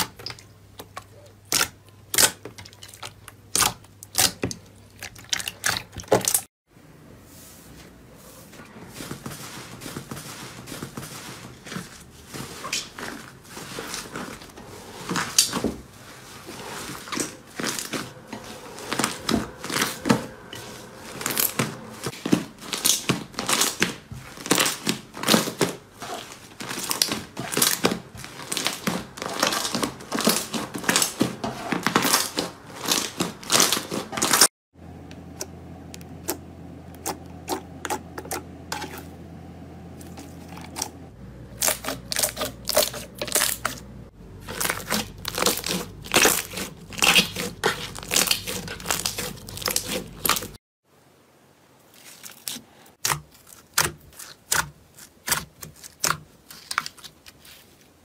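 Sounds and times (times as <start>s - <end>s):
steady low hum: 34.8s - 48.0s.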